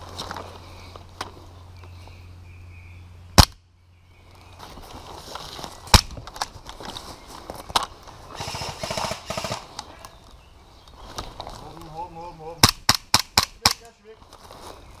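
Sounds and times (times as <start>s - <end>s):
rapid airsoft gunfire burst: 8.4s - 9.7s
airsoft gun cracks: 12.6s - 13.9s.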